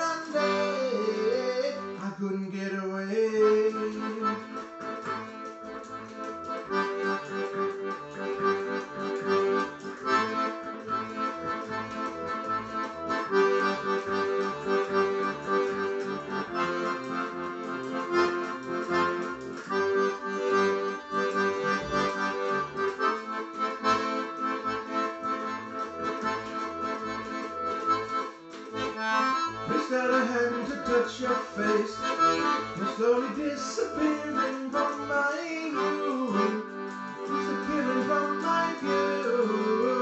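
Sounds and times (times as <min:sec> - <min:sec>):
accordion playing pop music: 0:00.0 - 0:40.0.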